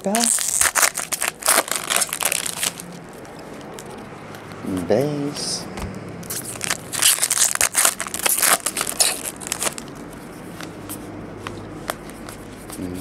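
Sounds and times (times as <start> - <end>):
foil wrapper crinkling: 0.0 - 4.0, 6.4 - 10.0.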